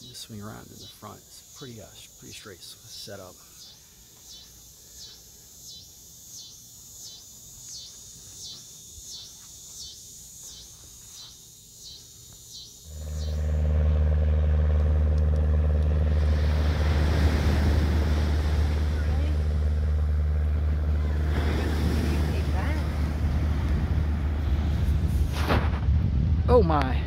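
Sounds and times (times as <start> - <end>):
insects chirping: 0.0 - 25.1
vehicle engine and road noise: 12.9 - 26.1.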